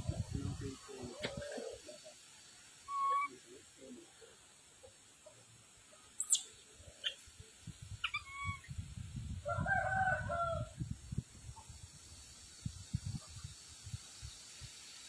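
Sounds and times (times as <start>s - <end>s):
sharp chirp: 6.2s - 6.5s
rooster crowing: 9.4s - 10.8s.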